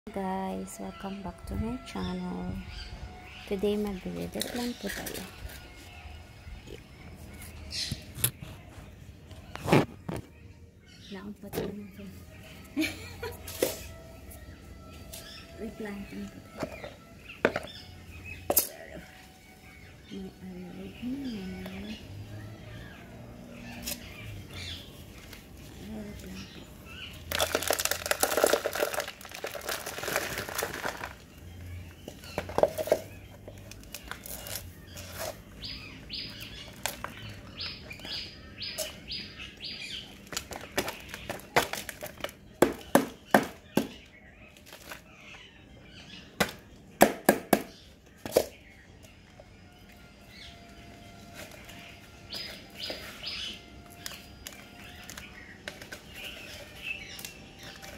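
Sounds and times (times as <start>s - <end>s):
birds chirping: 0.1s - 57.9s
soil rustling and pouring: 27.3s - 31.2s.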